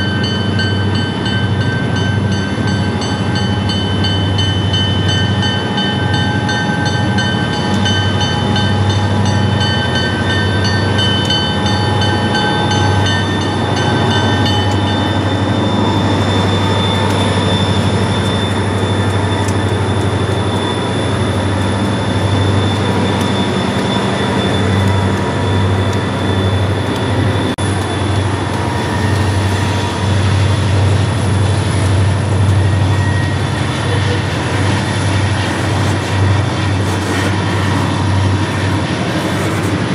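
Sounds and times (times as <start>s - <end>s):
diesel locomotive rumble: 0.0s - 39.9s
metallic wheel squeal: 6.0s - 30.6s, 32.6s - 39.9s.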